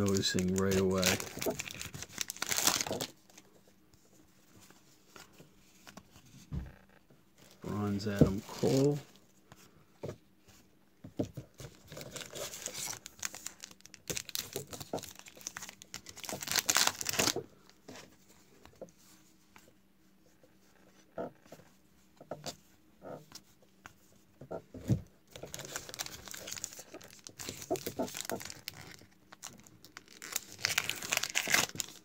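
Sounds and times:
foil wrapper crinkling and tearing: 0.0s - 3.4s, 11.6s - 17.5s, 25.3s - 32.0s.

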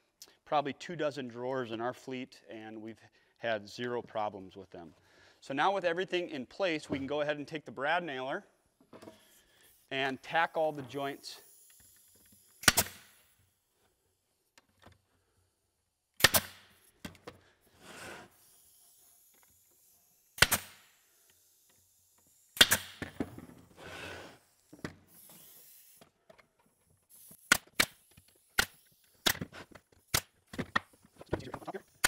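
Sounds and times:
nail gun firing: 11.8s - 13.3s, 16.2s - 16.9s, 20.4s - 21.0s, 22.6s - 23.3s, 27.2s - 31.0s.

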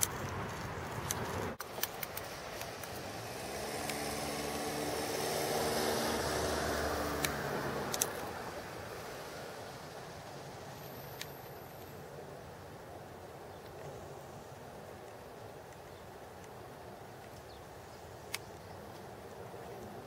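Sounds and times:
outdoor background noise: 0.0s - 20.0s
vehicle engine passing: 2.2s - 11.8s
light clicks: 7.2s - 8.3s.

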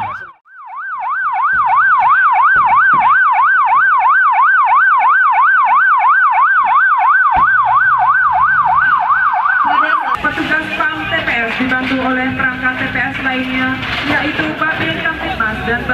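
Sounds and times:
police siren yelp: 0.0s - 11.5s.

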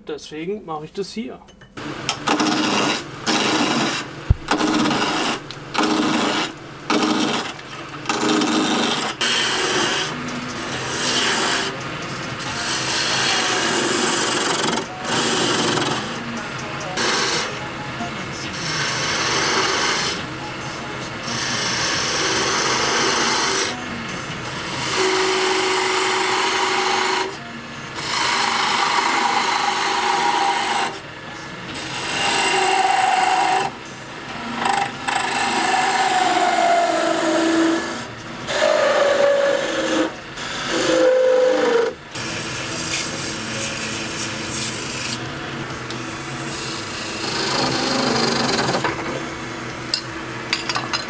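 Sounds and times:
wood lathe spinning: 1.9s - 17.7s, 18.3s - 31.1s, 31.7s - 49.2s
chisel scraping on wood: 2.3s - 11.8s, 12.5s - 16.2s, 17.0s - 17.5s, 21.2s - 23.8s, 28.0s - 31.0s, 31.8s - 33.7s, 34.6s - 41.9s, 46.6s - 49.0s.

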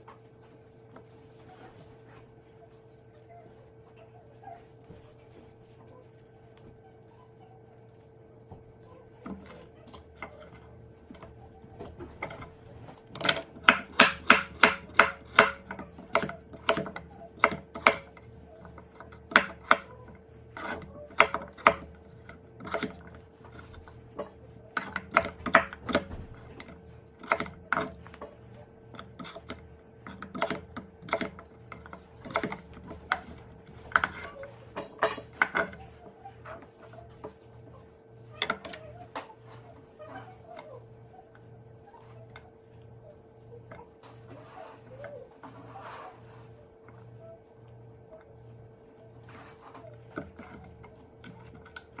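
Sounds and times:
knife chopping on wooden board: 12.1s - 19.9s, 20.5s - 28.3s.

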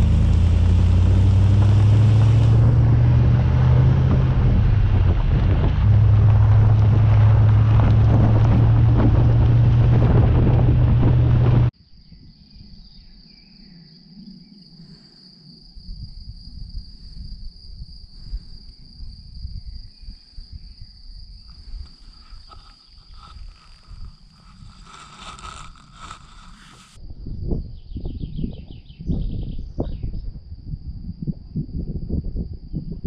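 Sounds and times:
loud driving noise: 0.0s - 11.7s
wind rumble on microphone: 0.0s - 13.3s, 15.6s - 33.0s
insect trill: 11.8s - 27.0s.

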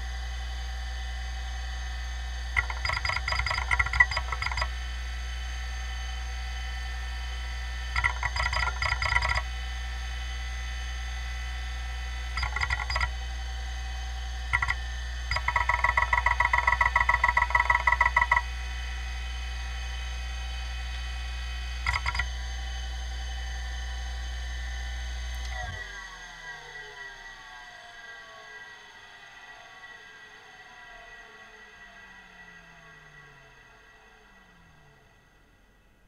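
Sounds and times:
hard drive spinning hum: 0.0s - 27.8s
hard drive heads ticking: 2.6s - 4.7s, 8.0s - 9.4s, 12.4s - 13.1s, 14.5s - 18.4s, 21.8s - 22.3s.

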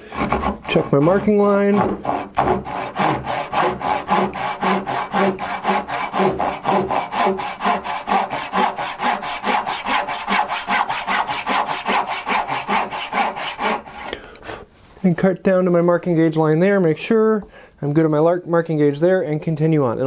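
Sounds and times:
hand saw cutting wood: 0.0s - 14.2s.

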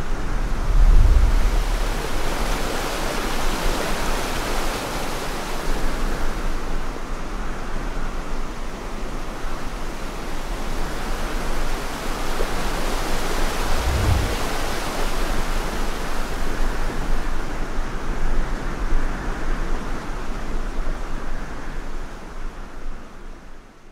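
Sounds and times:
creek water rushing: 1.0s - 6.7s, 9.3s - 16.7s.

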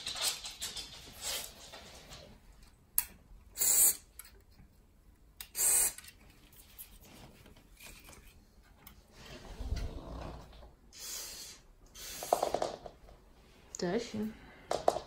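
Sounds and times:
aerosol spray hissing: 3.6s - 4.0s, 5.5s - 6.0s, 11.0s - 12.7s.

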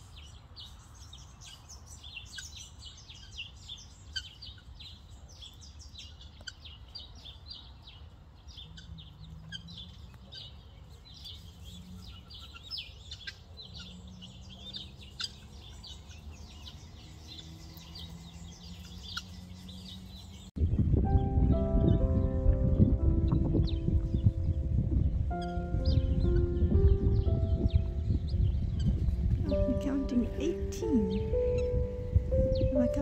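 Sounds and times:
chicks peeping: 2.4s - 33.0s
low background rumble: 20.5s - 33.0s
music: 20.6s - 33.0s.

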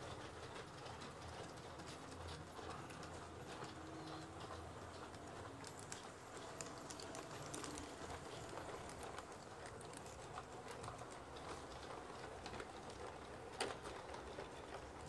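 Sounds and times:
low rumble of train running: 0.0s - 15.0s
model train wheels clicking: 0.0s - 15.0s.

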